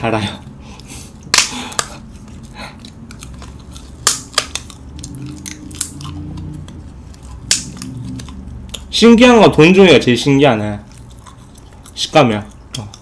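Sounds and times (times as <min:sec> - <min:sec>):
wafer paper bitten and chewed: 0:01.2 - 0:09.2.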